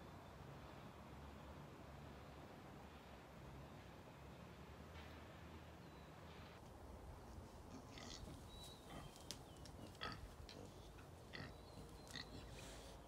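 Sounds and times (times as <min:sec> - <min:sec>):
faint pig grunts: 0:07.7 - 0:09.2, 0:09.8 - 0:13.0.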